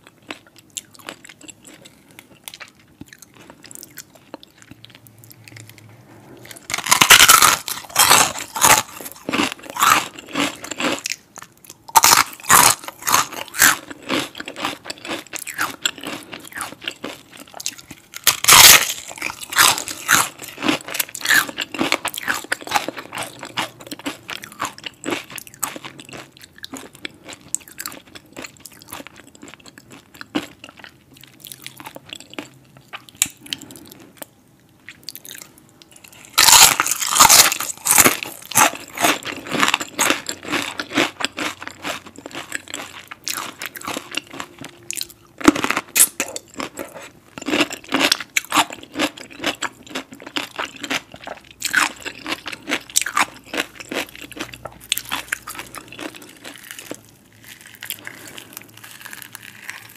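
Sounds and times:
crunching fried chicken skin: 6.5s - 34.0s, 35.0s - 59.9s.

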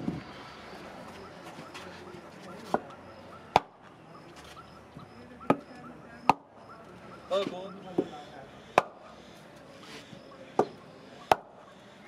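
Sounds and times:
hammer blows on wooden block: 7.9s - 9.0s, 10.6s - 11.6s.

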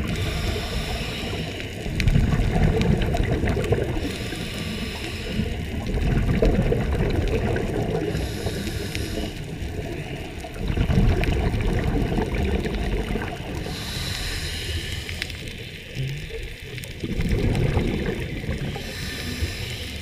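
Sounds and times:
regulator hissing inhale: 0.0s - 2.0s, 4.0s - 5.8s, 8.0s - 10.1s, 13.6s - 15.8s, 18.6s - 20.0s
exhaled bubbles gurgling: 0.0s - 20.0s.

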